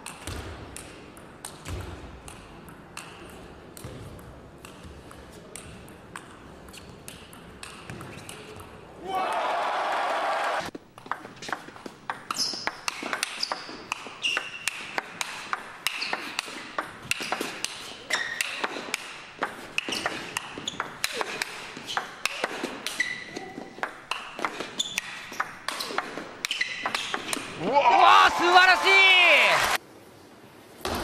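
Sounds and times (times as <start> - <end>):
shoes squeaking on floor: 10.7 - 15.0, 15.9 - 18.8, 19.6 - 27.5.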